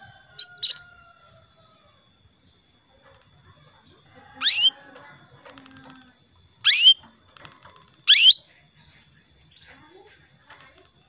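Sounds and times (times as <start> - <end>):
canary rising calls: 0.4 - 0.9, 4.4 - 4.8, 6.6 - 7.1, 8.0 - 8.4.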